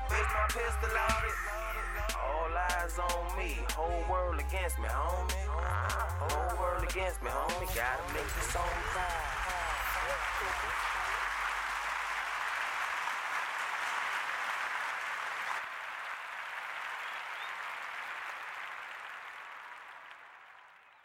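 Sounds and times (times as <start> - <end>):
bass beat: 0.0 - 11.0
applause: 7.7 - 21.0.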